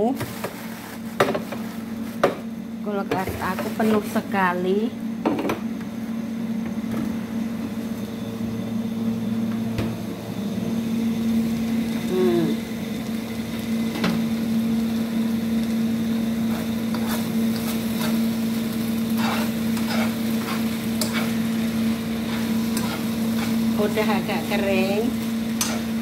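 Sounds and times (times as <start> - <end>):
noodles sizzling in pan: 11.2 - 26.0
scraping stirring strokes: 16.4 - 23.8.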